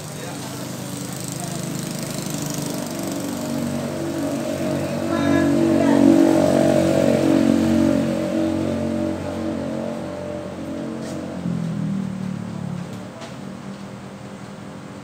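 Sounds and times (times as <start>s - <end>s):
small engine running: 0.0s - 10.4s.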